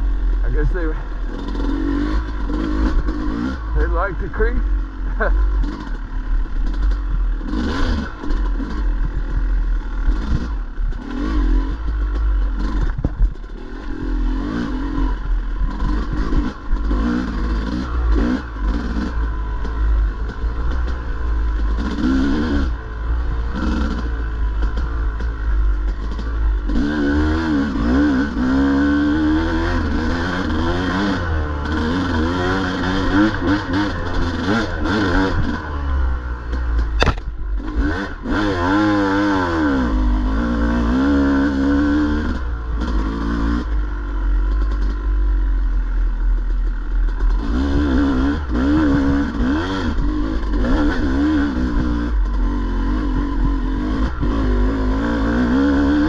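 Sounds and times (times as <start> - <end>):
dirt bike engine revving: 0.0 - 56.0
sharp knock: 37.0 - 37.3.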